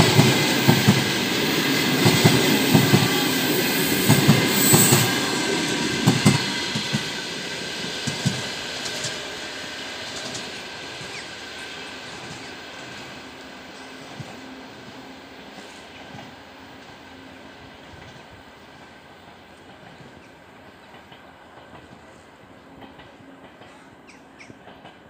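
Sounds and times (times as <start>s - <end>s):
train wheels clacking over rail joints: 0.0s - 14.4s, 19.6s - 25.0s.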